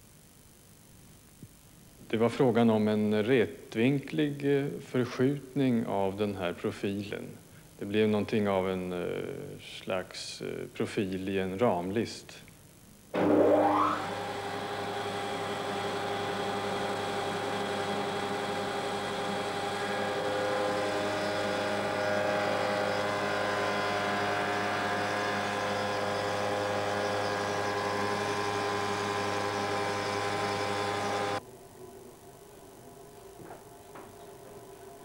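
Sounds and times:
router motor whining and humming: 0:13.2 - 0:31.4
cutter milling wood hiss: 0:14.0 - 0:31.4.

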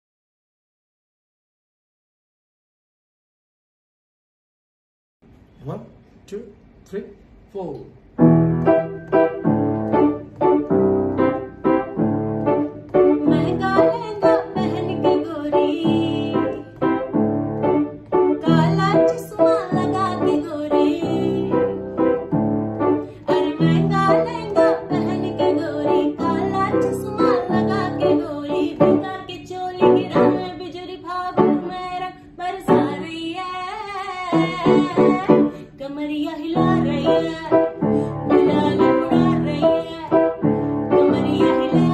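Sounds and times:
piano chords: 0:08.1 - 0:33.4, 0:34.0 - 0:41.9
woman singing: 0:13.2 - 0:17.0, 0:18.4 - 0:21.8, 0:23.0 - 0:41.9.

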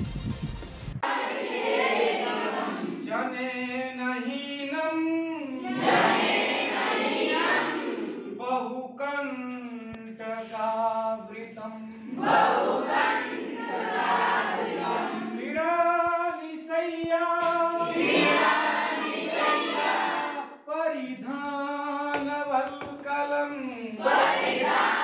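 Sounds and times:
students chanting in unison: 0:01.0 - 0:04.6, 0:05.4 - 0:08.7, 0:11.9 - 0:15.7, 0:17.4 - 0:20.6, 0:23.9 - 0:25.0.

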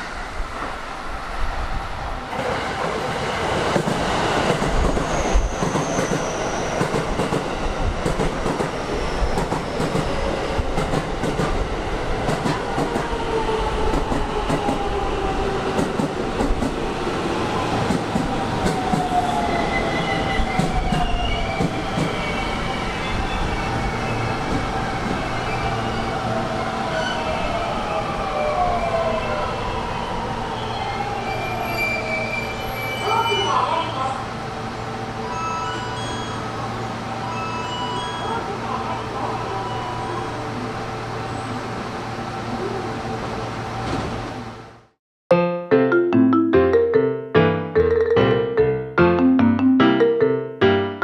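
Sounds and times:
train wheels clacking: 0:03.7 - 0:11.6, 0:12.3 - 0:13.2, 0:15.8 - 0:16.8
high tones: 0:45.3 - 0:51.0.

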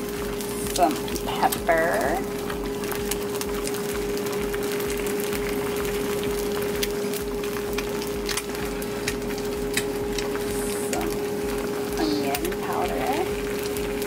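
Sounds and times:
eggs sizzling in a pan: 0:00.0 - 0:14.0
steady hum: 0:00.0 - 0:14.0.

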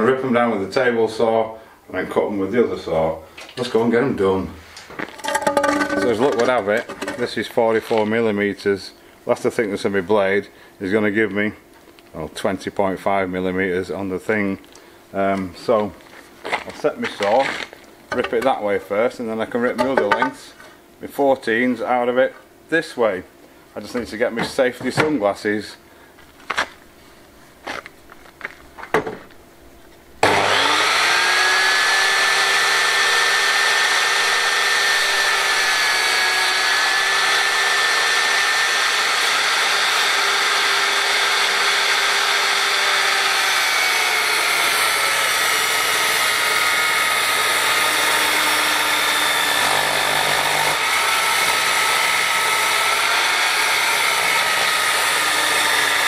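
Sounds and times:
table saw cutting wood: 0:05.2 - 0:07.4, 0:19.5 - 0:20.4, 0:30.2 - 0:56.0.

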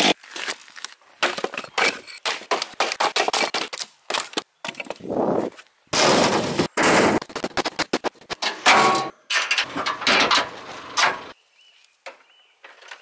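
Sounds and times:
firewood logs knocking and clattering: 0:01.2 - 0:05.0.

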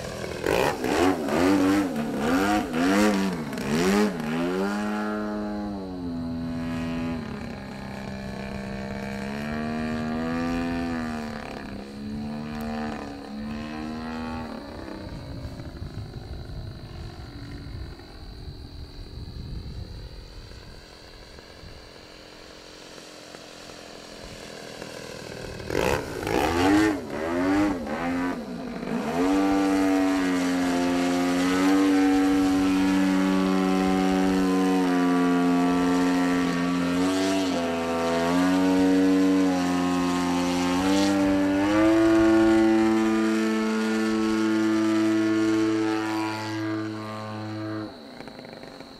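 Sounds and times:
model plane engine drone: 0:00.0 - 0:48.9.

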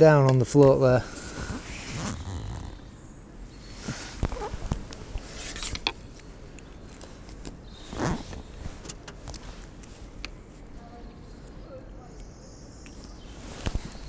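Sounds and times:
loud rustle: 0:01.0 - 0:02.8, 0:13.3 - 0:14.0.

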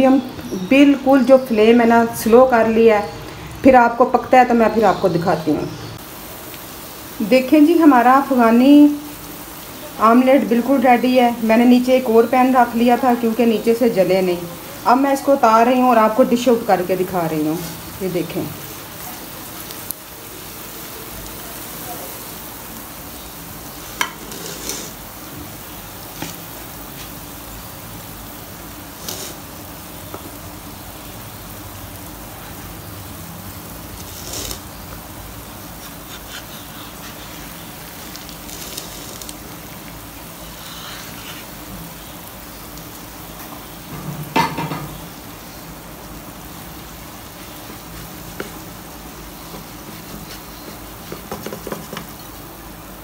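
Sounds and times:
omelette sizzling in a frying pan: 0:00.0 - 0:53.0
wooden spatula scraping and knocking: 0:24.0 - 0:25.0, 0:49.4 - 0:52.3.

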